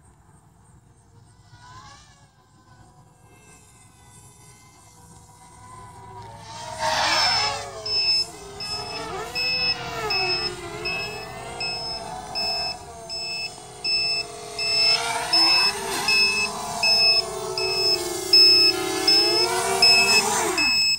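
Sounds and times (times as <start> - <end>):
quadcopter motors whining: 0.1 - 20.9
electronic alarm beeping: 7.2 - 20.9.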